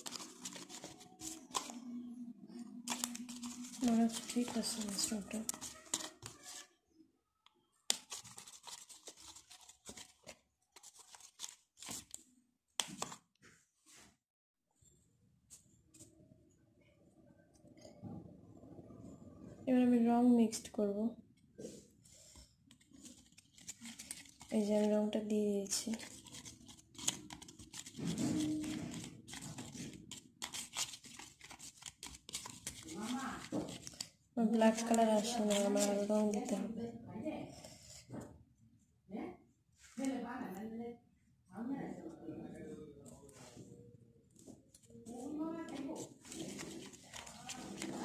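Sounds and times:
plastic spoon scraping bowl: 0:00.0 - 0:01.9, 0:02.7 - 0:06.7, 0:07.9 - 0:12.2, 0:25.7 - 0:34.0, 0:34.7 - 0:36.7, 0:45.7 - 0:48.0
spoon scraping paint in bowl: 0:02.9 - 0:06.7, 0:07.9 - 0:12.1.

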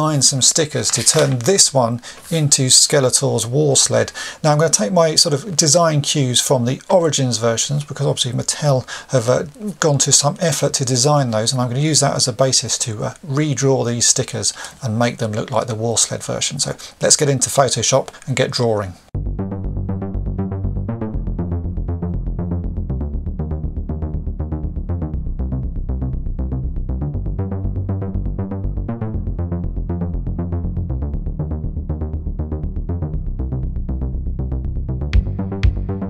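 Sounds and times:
electronic music with pulsing beat: 0:19.2 - 0:36.0.

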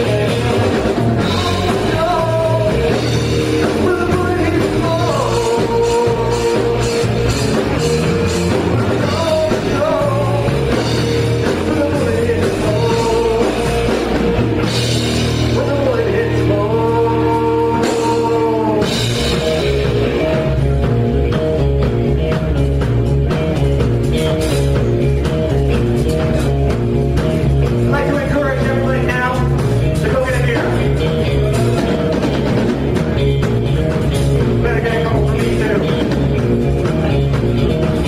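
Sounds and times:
person singing: 0:00.0 - 0:14.3, 0:15.4 - 0:19.3, 0:34.4 - 0:36.2
drum kit: 0:00.0 - 0:38.0
electric guitar: 0:00.0 - 0:38.0.

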